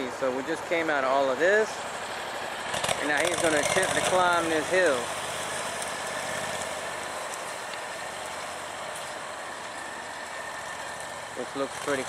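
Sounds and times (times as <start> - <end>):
vehicle engine running: 0.3 - 12.0
faint steady whine: 4.6 - 12.0.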